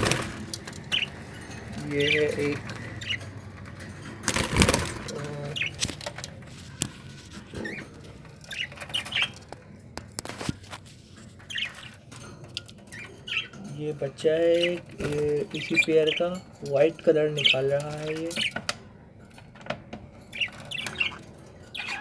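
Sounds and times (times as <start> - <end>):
wings flapping: 0.0 - 1.1, 4.0 - 7.8
budgerigars chirping: 0.0 - 3.8, 4.4 - 6.0, 7.5 - 9.6, 11.4 - 12.1, 12.8 - 18.7, 20.3 - 22.0.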